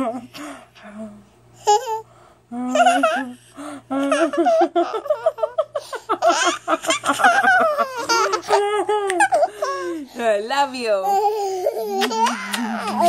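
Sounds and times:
toddler laughing: 2.7 - 3.4, 4.0 - 10.0, 11.1 - 13.0.

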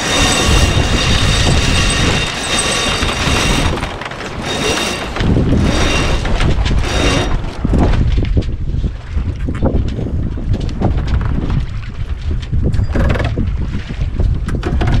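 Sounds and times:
water rushing along hull: 0.0 - 8.2
wind buffeting microphone: 0.0 - 15.0.

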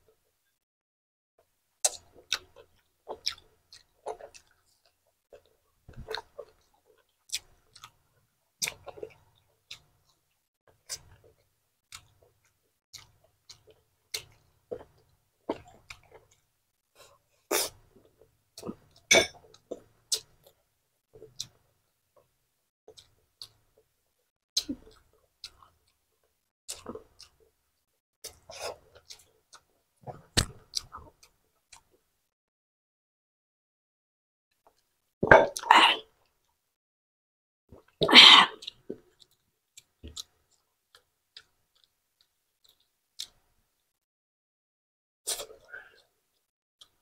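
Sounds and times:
chewing and lip-smacking: 1.8 - 8.0, 8.6 - 16.5, 18.6 - 20.6, 24.6 - 26.0, 26.7 - 27.4, 28.2 - 32.0, 37.8 - 43.4.

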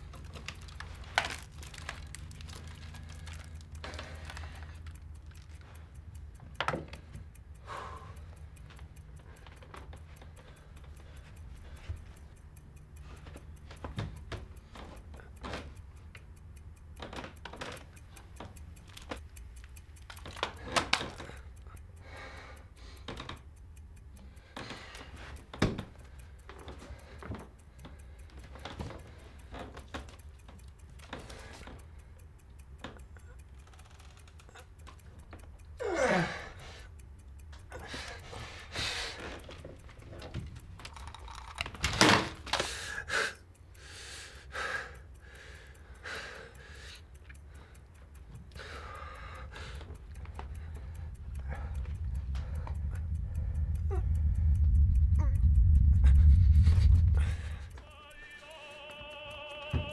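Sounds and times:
sharp clicks: 0.0 - 59.9
wall clock ticking: 0.0 - 59.9
low steady hum: 43.4 - 59.9.

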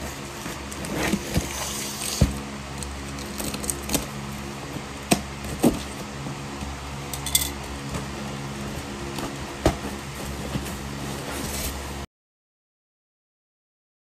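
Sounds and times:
steady low hum: 0.0 - 12.1
taps and knocks on cardboard box: 9.2 - 10.8.

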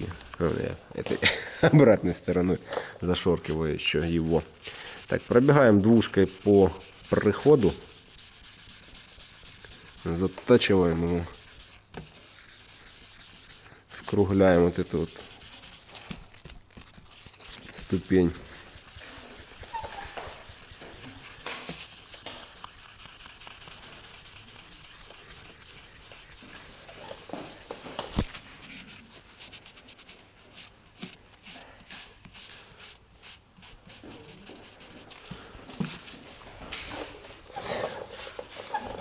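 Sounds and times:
sanding pad hissing strokes: 4.1 - 16.2, 17.4 - 35.2.

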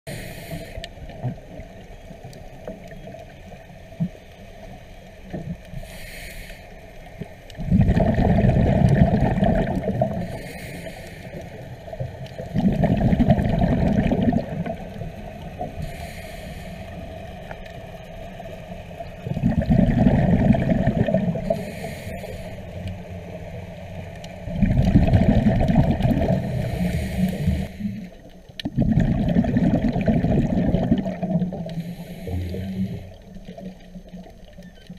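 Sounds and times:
regulator inhale hiss: 0.1 - 1.1, 5.7 - 7.5, 10.0 - 12.4, 15.4 - 17.6, 21.3 - 23.4, 26.2 - 28.3, 31.5 - 33.8
exhaled bubbles rushing underwater: 7.5 - 10.5, 11.3 - 22.4, 23.9 - 34.9.

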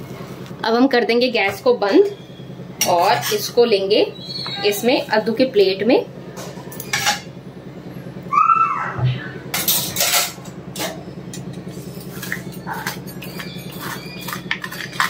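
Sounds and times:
steady low hum: 0.0 - 15.0
short squeak: 12.5 - 15.0.

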